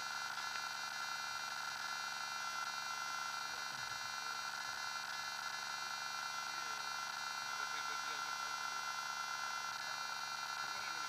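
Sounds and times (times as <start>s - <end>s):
electrical whine and buzz: 0.0s - 11.0s.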